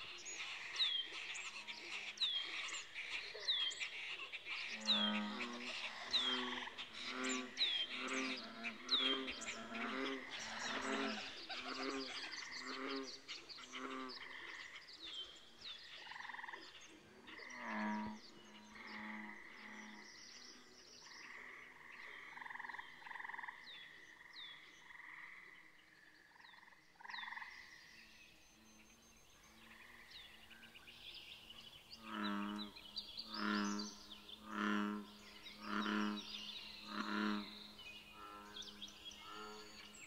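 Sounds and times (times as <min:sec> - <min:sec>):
frogs croaking: 0:00.0 - 0:40.0
loud low frog croaks: 0:04.7 - 0:14.8, 0:16.0 - 0:28.0, 0:32.0 - 0:40.0.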